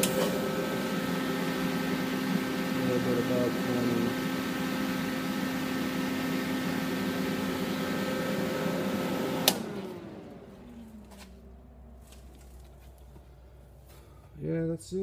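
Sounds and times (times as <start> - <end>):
fan switch click: 0.0 - 0.4, 9.4 - 9.8
electric fan humming: 0.0 - 15.0.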